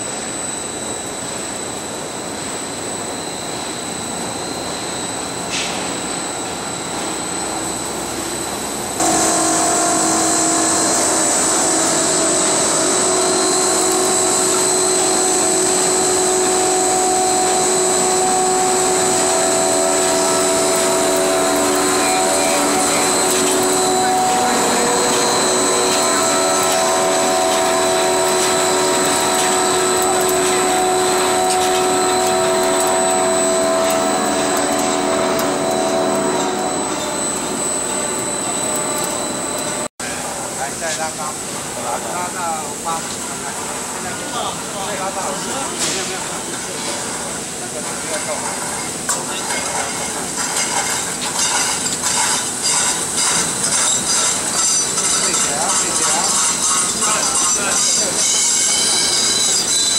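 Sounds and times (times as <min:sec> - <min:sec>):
whining machine tones: 0:00.0 - 0:39.9, 0:52.6 - 0:59.9
steel slitting machine running: 0:00.0 - 0:59.9.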